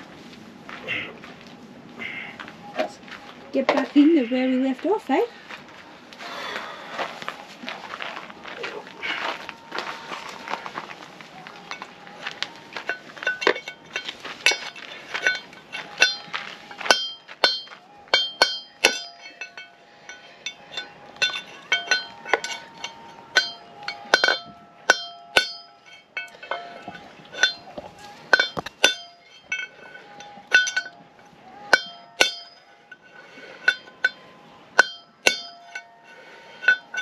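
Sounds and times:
hammer striking metal: 12.8 - 34.2, 34.8 - 37.0
metal drum ringing: 12.9 - 31.0, 31.6 - 32.7, 34.8 - 36.0.

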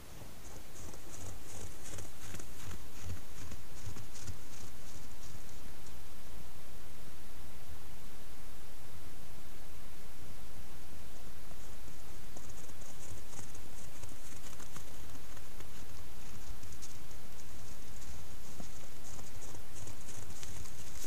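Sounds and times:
footsteps crunching on snow: 0.0 - 6.0, 11.4 - 21.0
low hum: 0.0 - 21.0
microphone hiss: 0.0 - 21.0.

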